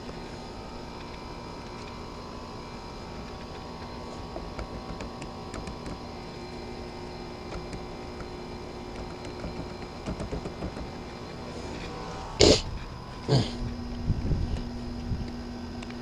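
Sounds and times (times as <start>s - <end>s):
steady mechanical hum: 0.0s - 16.0s
faint held tones: 10.9s - 15.9s.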